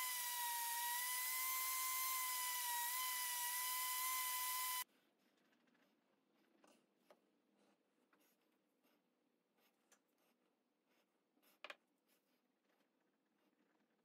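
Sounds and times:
orbital sander whining: 0:00.0 - 0:04.8.

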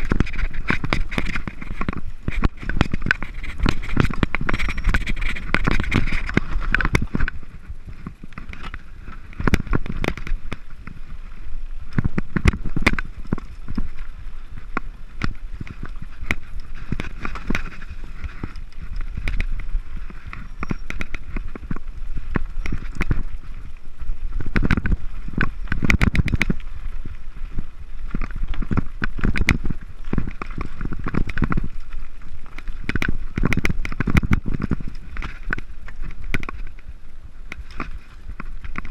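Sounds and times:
bike rattling over stones: 0:00.0 - 0:38.9
bike tyres rumbling over dirt: 0:00.0 - 0:38.9
wind buffeting microphone: 0:00.0 - 0:38.9.

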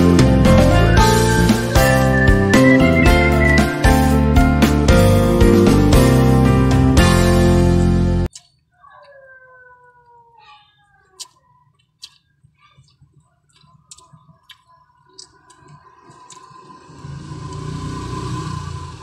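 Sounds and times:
lip smacks and chewing: 0:08.3 - 0:09.3, 0:11.0 - 0:17.7.

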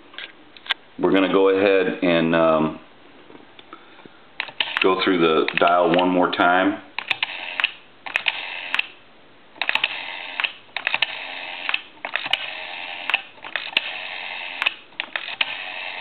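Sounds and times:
rotary telephone dial whirring: 0:07.0 - 0:08.9, 0:09.6 - 0:16.0.

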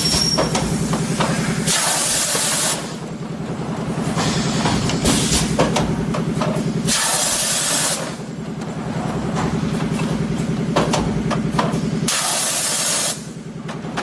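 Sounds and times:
machine mechanical hum with clanks: 0:00.0 - 0:14.0
compressed air hiss: 0:00.7 - 0:03.0, 0:04.2 - 0:05.6, 0:06.9 - 0:08.2, 0:12.1 - 0:13.3.

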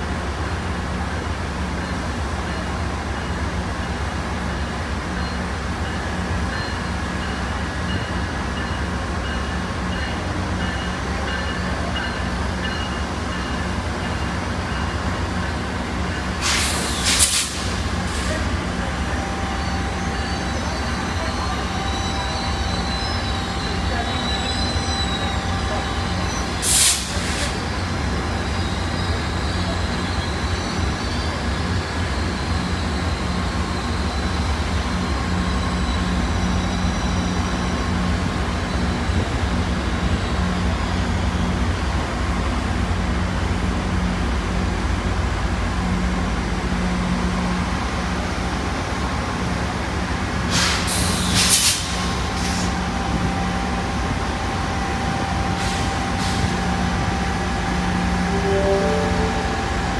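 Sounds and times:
diesel locomotive drone: 0:00.0 - 0:59.9
air brake hiss: 0:16.4 - 0:18.4, 0:26.6 - 0:27.6, 0:50.5 - 0:52.8, 0:55.6 - 0:56.5
steady high tone: 0:18.3 - 0:27.2, 0:54.9 - 0:59.9.

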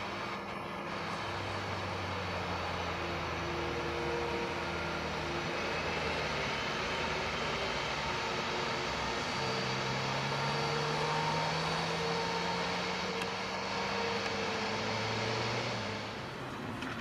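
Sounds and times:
jet engines running at taxi power: 0:00.0 - 0:17.0.

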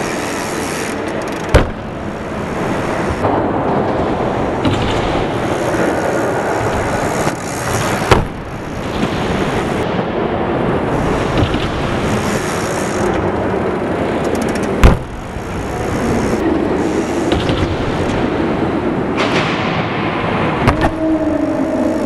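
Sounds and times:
loud rumbling noise: 0:00.0 - 0:22.0
bmx bikes landing on ramp: 0:01.4 - 0:02.0, 0:06.6 - 0:09.6, 0:14.8 - 0:16.3.

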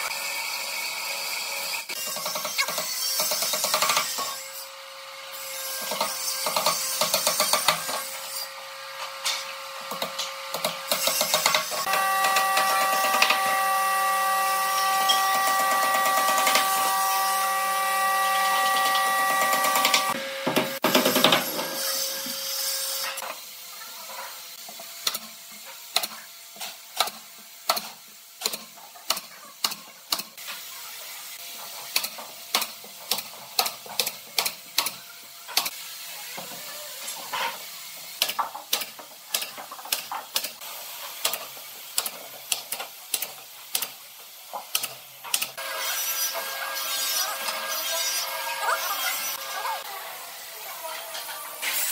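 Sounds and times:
power tool motor whining: 0:11.8 - 0:20.8.

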